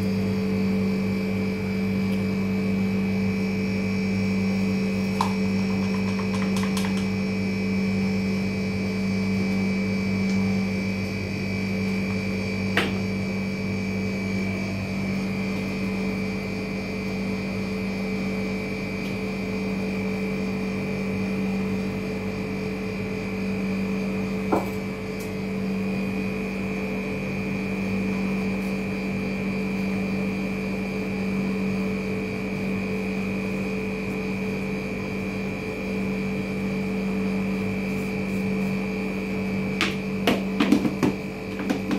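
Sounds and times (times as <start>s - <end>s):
machine hum with high whine: 0.0s - 41.9s.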